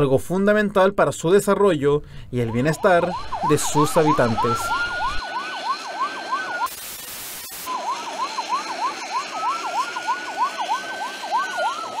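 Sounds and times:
fast yelping siren: 0:02.4 - 0:12.0
slow wailing siren: 0:02.5 - 0:12.0
rush of hiss: 0:06.6 - 0:10.4.

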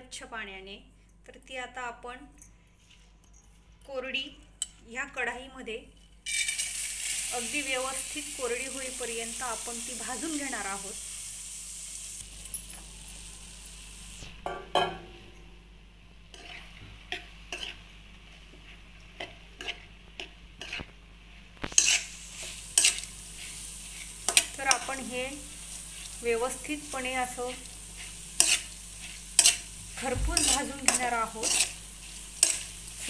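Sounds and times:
metal spoon scraping a pan: 0:06.3 - 0:07.3, 0:16.3 - 0:18.0, 0:19.2 - 0:20.9, 0:21.6 - 0:26.2, 0:27.4 - 0:33.0
faint sizzle: 0:06.3 - 0:33.0.

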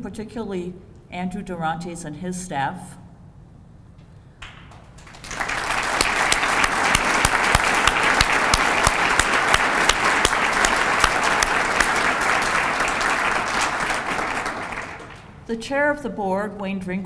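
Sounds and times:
sharp nearby hand claps: 0:04.4 - 0:15.3
audience applause: 0:04.7 - 0:15.4.

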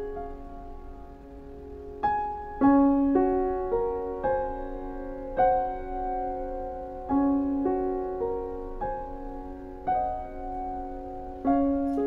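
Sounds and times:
gentle piano piece: 0:00.0 - 0:12.0.

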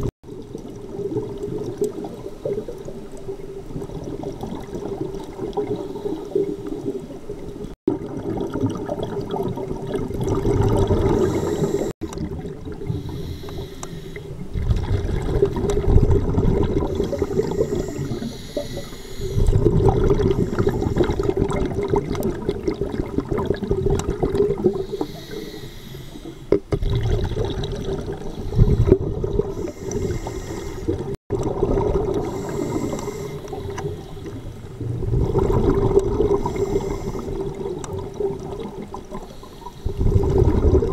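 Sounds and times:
exhaled air bubbling underwater: 0:00.0 - 0:40.9
diver inhaling through regulator: 0:10.9 - 0:12.0, 0:12.8 - 0:14.4, 0:16.8 - 0:21.6, 0:24.7 - 0:26.5, 0:28.4 - 0:31.2, 0:32.2 - 0:34.6, 0:36.2 - 0:37.6, 0:39.2 - 0:40.1.

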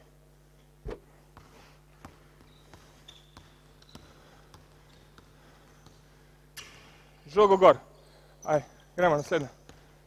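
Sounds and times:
low steady hum: 0:00.0 - 0:10.0
basketball bouncing on wood floor: 0:01.4 - 0:06.2, 0:09.6 - 0:09.9.

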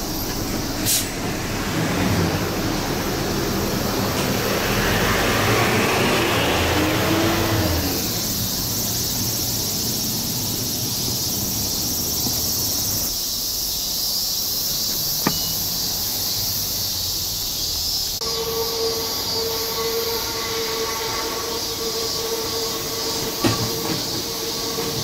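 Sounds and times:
high insect chorus: 0:00.0 - 0:25.0
train wheels squealing: 0:14.8 - 0:25.0.

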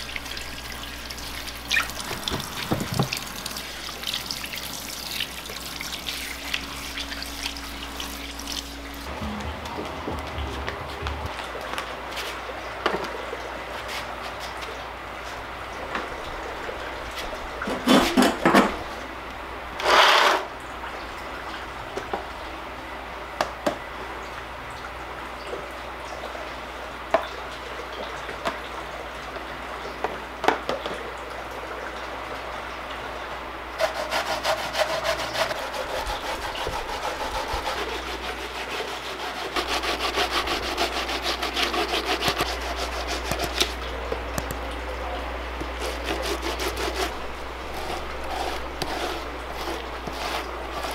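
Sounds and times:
knocks: 0:09.1 - 0:11.4
grating on tin grater: 0:33.8 - 0:43.7, 0:45.8 - 0:50.9.

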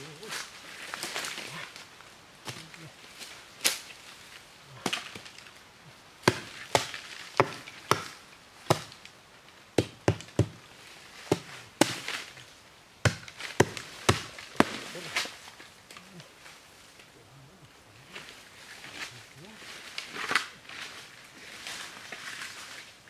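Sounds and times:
wood being chopped: 0:06.2 - 0:09.1, 0:09.8 - 0:10.6, 0:11.3 - 0:12.3, 0:13.0 - 0:15.3.

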